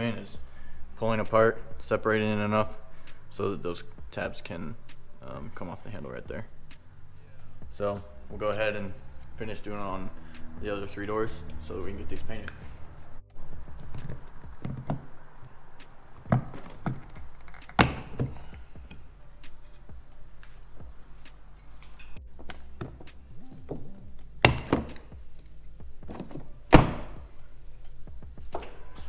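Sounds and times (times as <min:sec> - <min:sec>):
truck door knocks and clicks: 0:23.7 - 0:25.1, 0:26.0 - 0:27.3.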